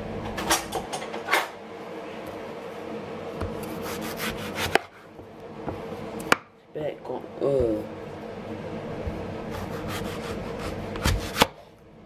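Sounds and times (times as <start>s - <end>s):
steady hum: 0.0s - 12.0s
fruit scraping on wooden board: 3.7s - 5.1s, 9.5s - 11.6s.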